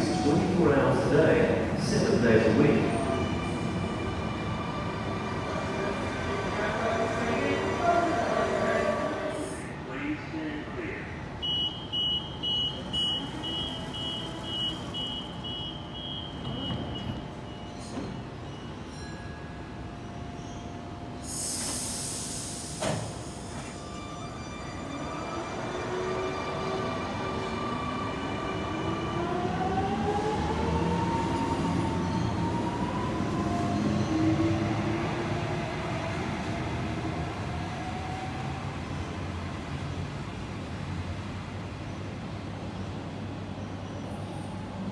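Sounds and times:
train door warning beeps: 11.4 - 19.0
sliding doors shutting: 21.5 - 23.8.

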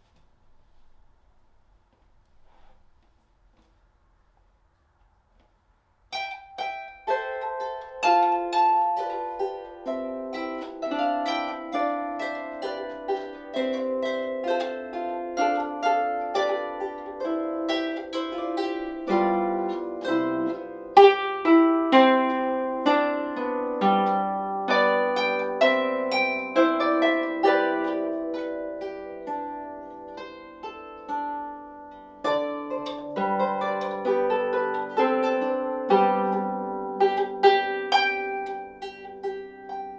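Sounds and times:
harp plucked notes: 6.1 - 39.9.

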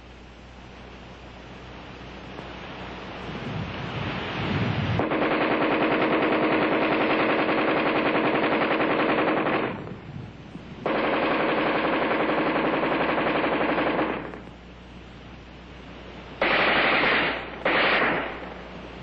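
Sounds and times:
rush of noise: 2.4 - 14.4
rifle firing automatic bursts: 5.0 - 9.9, 10.8 - 14.5, 16.4 - 18.5.

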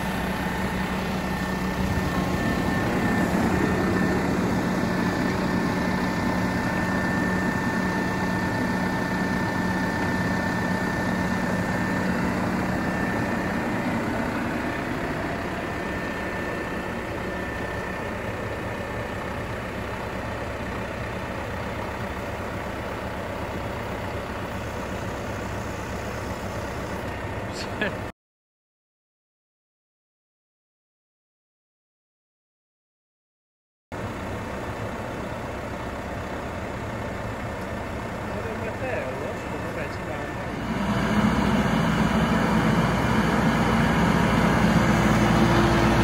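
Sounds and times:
hydraulic whine: 0.0 - 27.8, 37.6 - 46.0
tractor diesel engine running: 0.0 - 28.1, 33.9 - 46.0.

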